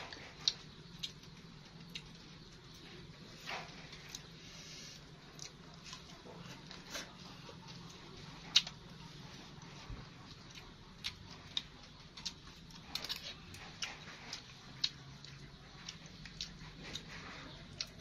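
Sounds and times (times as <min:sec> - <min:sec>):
person chewing: 0:00.0 - 0:18.0.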